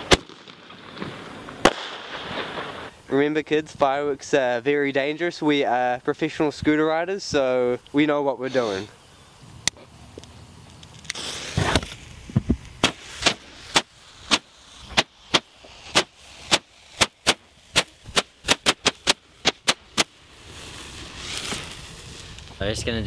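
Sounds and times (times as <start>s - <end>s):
firework pops: 0.0s - 3.0s, 9.6s - 22.6s
firework hissing rush: 0.0s - 23.0s.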